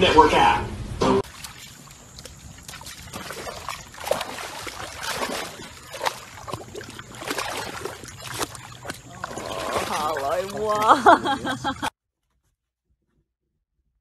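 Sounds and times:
dog splashing in mud: 0:01.2 - 0:11.6.

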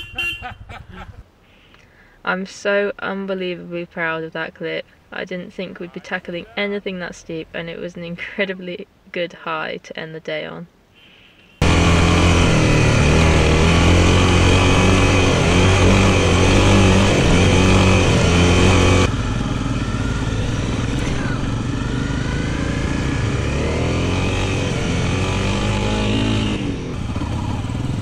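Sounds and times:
dirt bike engine running: 0:11.6 - 0:28.0.

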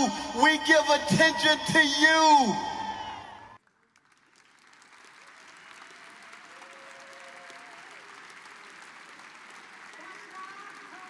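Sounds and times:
man's voice: 0:00.0 - 0:03.2
audience applauding: 0:03.6 - 0:11.0.

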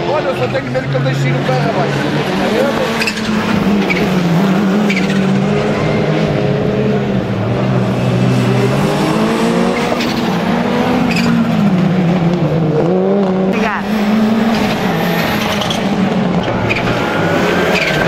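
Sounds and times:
race car engines: 0:00.0 - 0:18.0.

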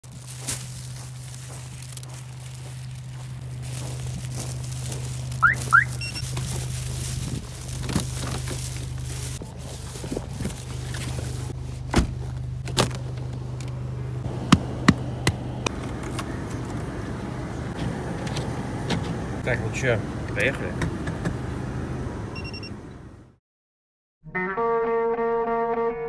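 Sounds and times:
car engine idling: 0:00.0 - 0:23.4
car alarm chirps: 0:05.4 - 0:06.2, 0:22.3 - 0:22.8.

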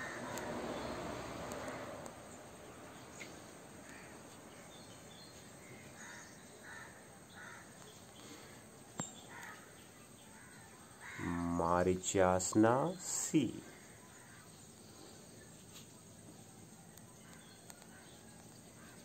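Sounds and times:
crows cawing: 0:00.0 - 0:00.8, 0:03.8 - 0:04.7, 0:05.6 - 0:08.6, 0:09.3 - 0:11.4, 0:13.7 - 0:14.5.

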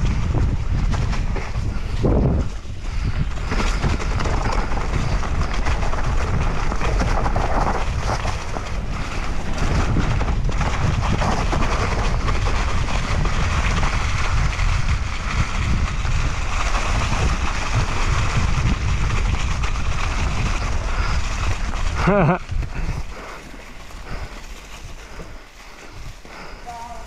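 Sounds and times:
bike tyres crunching leaves: 0:00.0 - 0:27.0
wind buffeting microphone: 0:00.0 - 0:27.0
bike knocking over bumps: 0:03.2 - 0:24.6.

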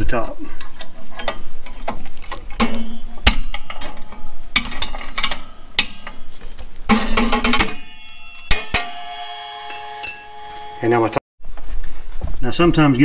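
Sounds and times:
metal clicks and scrapes of spring: 0:00.1 - 0:06.3.

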